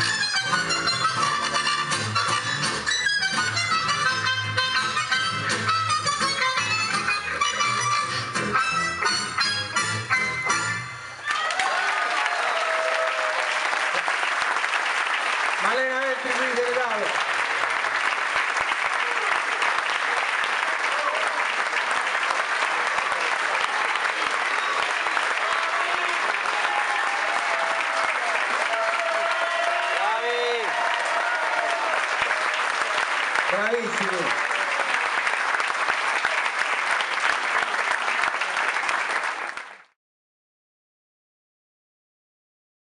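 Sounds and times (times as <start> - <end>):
audience applauding: 10.4 - 40.0.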